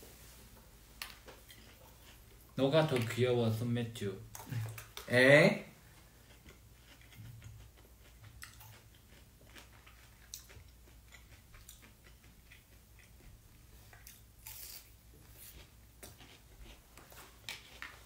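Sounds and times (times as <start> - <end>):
chewing fried food: 1.0 - 3.2, 5.8 - 18.0.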